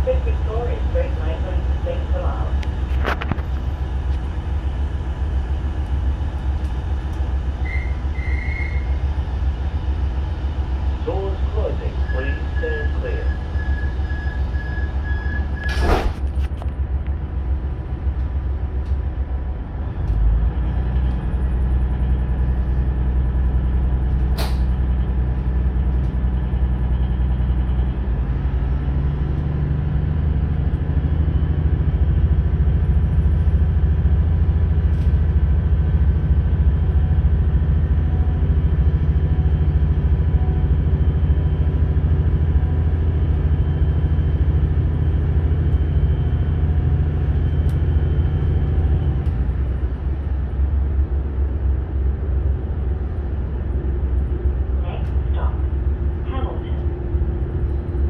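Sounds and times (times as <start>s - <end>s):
diesel railcar engine drone: 0.0s - 58.0s
brief click: 24.4s - 24.7s.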